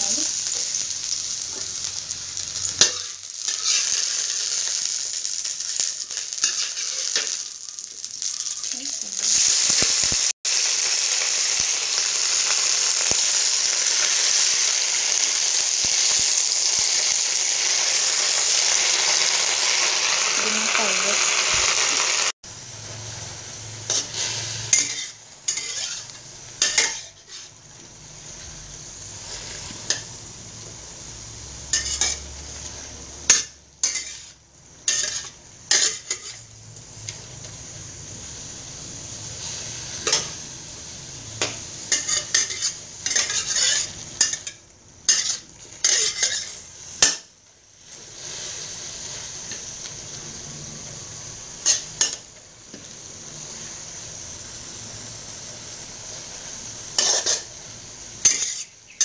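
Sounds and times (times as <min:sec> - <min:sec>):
greens sizzling: 0:00.0 - 0:59.0
metal spatula scraping a wok: 0:02.8 - 0:04.8, 0:23.8 - 0:27.6, 0:31.7 - 0:36.5, 0:41.9 - 0:44.5, 0:45.1 - 0:47.3, 0:56.9 - 0:57.6, 0:58.2 - 0:59.0.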